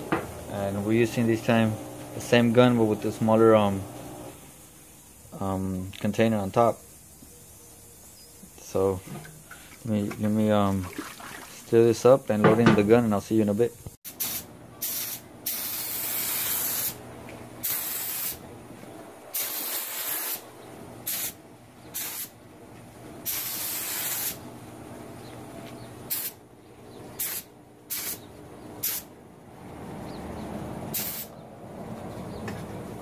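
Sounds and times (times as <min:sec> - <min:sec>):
spray gun hissing bursts: 0:14.1 - 0:17.0, 0:17.6 - 0:18.4, 0:19.3 - 0:22.3, 0:23.2 - 0:24.4, 0:26.1 - 0:26.4, 0:27.2 - 0:28.2, 0:28.8 - 0:29.1, 0:30.9 - 0:31.3.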